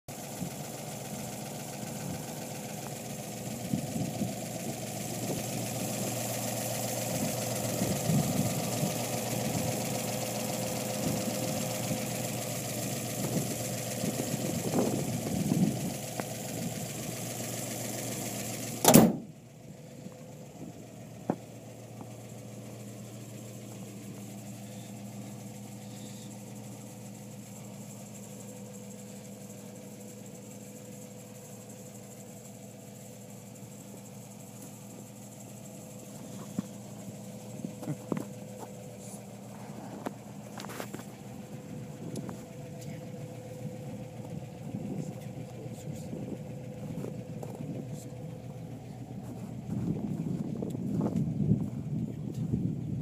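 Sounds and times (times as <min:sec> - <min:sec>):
car engine idling: 0:00.0 - 0:53.0
loud hood slam: 0:18.8 - 0:19.3.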